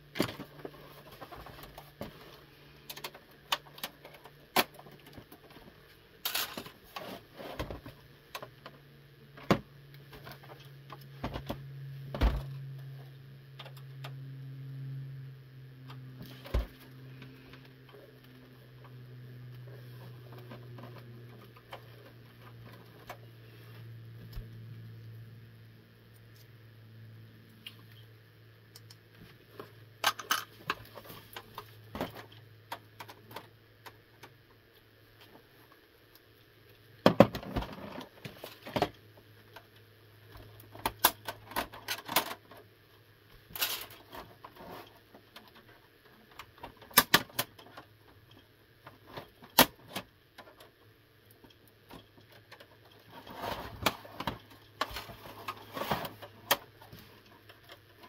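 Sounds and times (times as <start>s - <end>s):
steady low hum: 0.0s - 46.9s
plastic and metal clicks and rattles: 0.1s - 8.8s, 29.6s - 34.4s, 40.4s - 42.7s, 43.5s - 58.0s.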